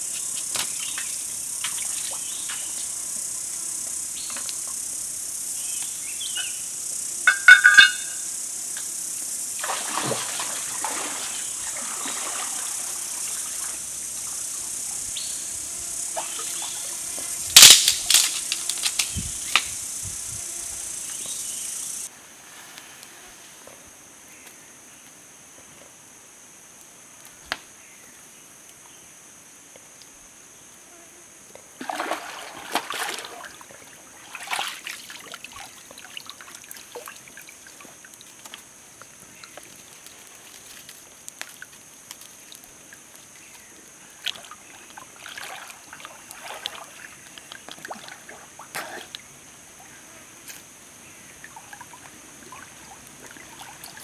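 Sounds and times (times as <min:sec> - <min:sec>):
high insect drone: 0:00.0 - 0:54.0
water splashing from swimming: 0:09.6 - 0:14.4, 0:31.8 - 0:38.4, 0:44.2 - 0:49.3, 0:51.4 - 0:54.0.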